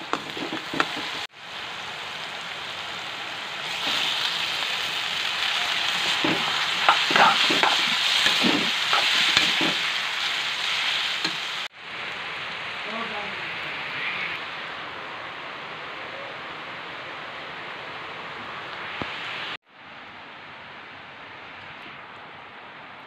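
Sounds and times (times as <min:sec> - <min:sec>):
steel spoon scraping a pan: 0:00.0 - 0:01.3, 0:05.9 - 0:10.0
vegetables sizzling in a pan: 0:00.0 - 0:11.8.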